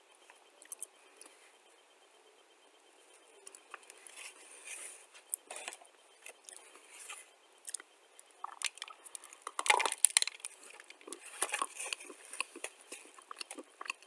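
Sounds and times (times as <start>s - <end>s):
person chewing clay: 5.2s - 14.0s
crisp crunches: 8.4s - 14.0s.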